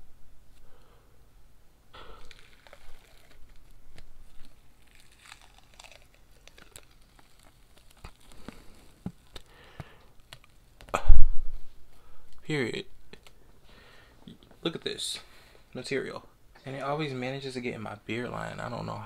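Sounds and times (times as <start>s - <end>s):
face mask peeling crackle: 2.0s - 11.0s.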